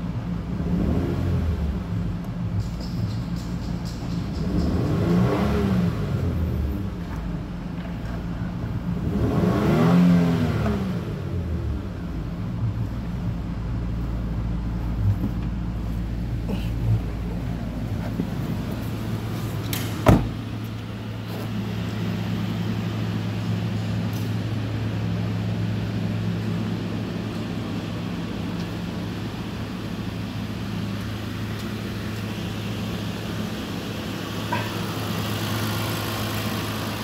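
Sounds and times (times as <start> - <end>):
car engine idling: 0.0 - 37.0
loud thump: 19.8 - 20.5.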